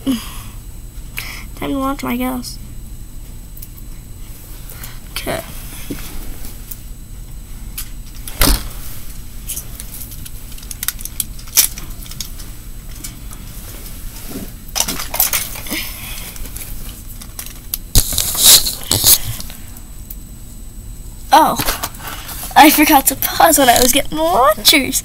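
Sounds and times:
plastic toys clicking and rattling: 14.8s - 15.7s.

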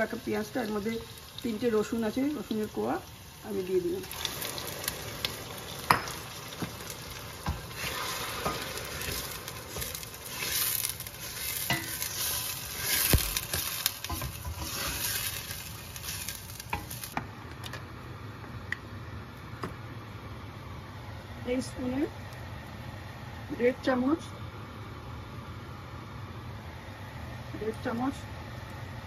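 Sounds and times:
paste frying in hot oil: 0.0s - 17.6s
spatula scraping pan: 7.5s - 17.0s.

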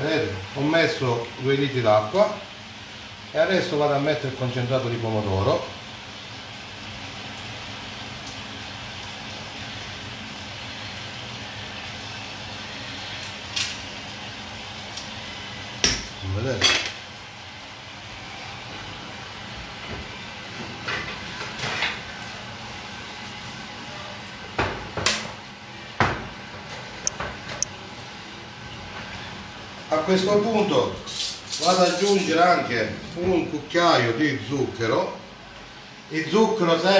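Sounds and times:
steady background hiss: 29.2s - 36.9s.

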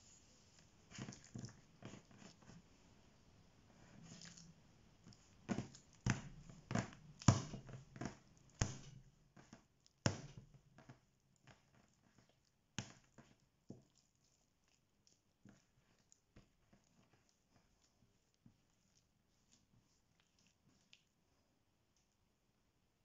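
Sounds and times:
dough slapping on metal board: 5.5s - 9.0s.

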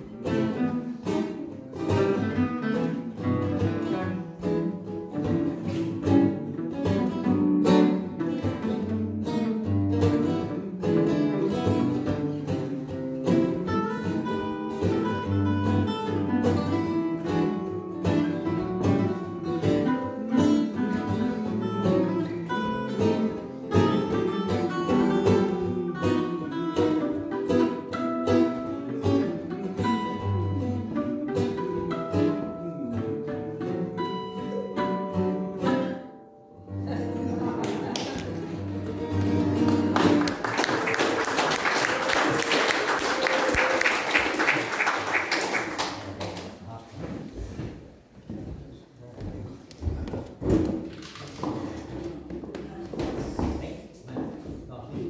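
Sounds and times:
mandolin-like plucked strings: 0.0s - 40.4s
acoustic guitar: 0.0s - 55.0s.

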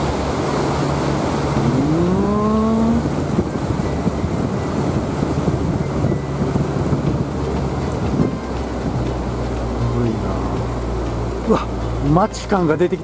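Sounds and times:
rising pitched tone: 0.0s - 12.3s
boat engine running: 0.0s - 13.0s
wind buffeting microphone: 0.0s - 13.0s.

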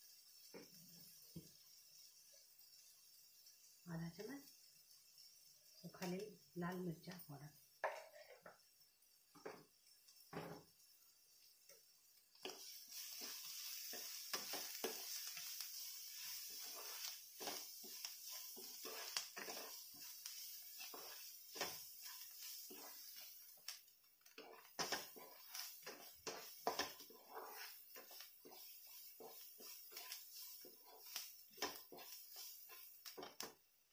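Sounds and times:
frying sizzle: 0.0s - 33.9s
spatula scraping and tapping pan: 0.4s - 1.6s, 7.8s - 8.7s, 9.3s - 10.8s, 11.6s - 33.7s.

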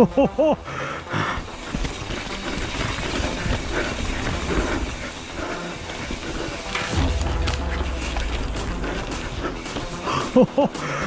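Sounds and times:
bike tyres on dirt trail: 0.0s - 11.0s
steady low rumble: 3.1s - 11.0s.

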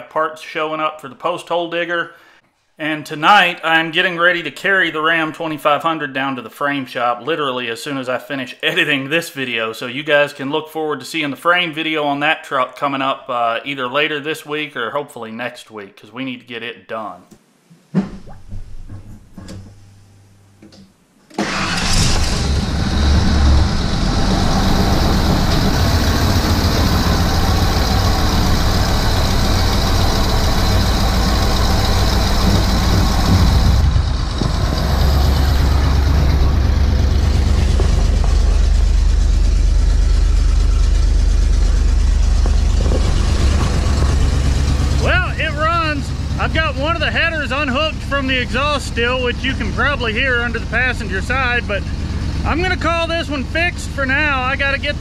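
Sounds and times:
truck engine starting and running: 21.3s - 55.0s.

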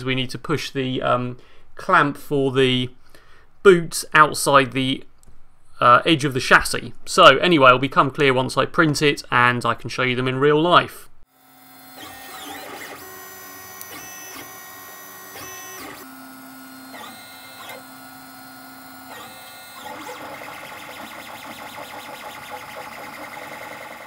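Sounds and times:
stepper motors whining: 11.4s - 24.0s.

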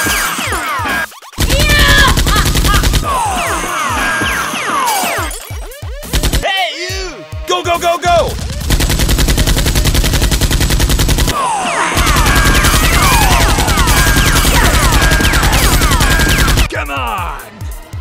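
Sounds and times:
rapid automatic gunfire: 0.0s - 3.7s, 5.4s - 6.4s, 8.3s - 16.7s.

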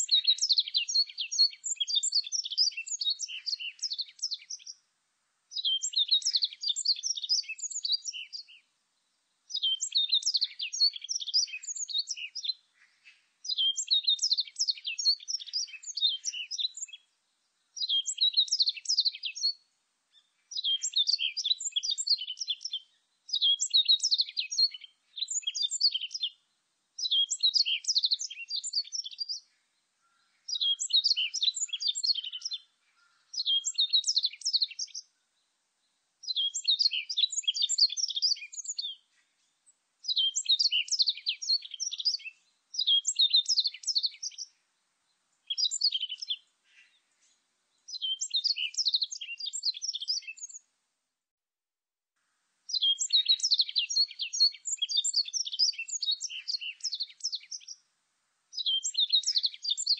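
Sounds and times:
bird twittering: 0.0s - 4.8s, 9.5s - 17.0s, 20.5s - 26.3s, 27.0s - 35.0s, 36.2s - 39.0s, 40.0s - 44.6s, 45.5s - 47.0s, 47.9s - 50.6s, 52.7s - 57.8s, 58.6s - 59.9s.

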